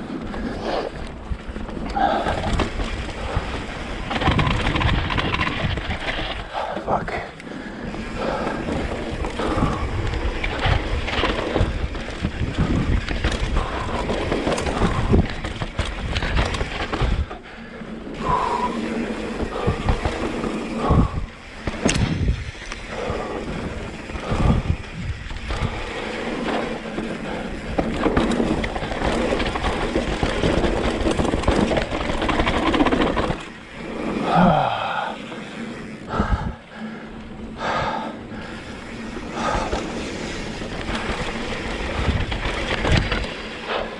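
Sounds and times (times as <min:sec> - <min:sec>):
bike rattling over bumps: 0:00.0 - 0:43.9.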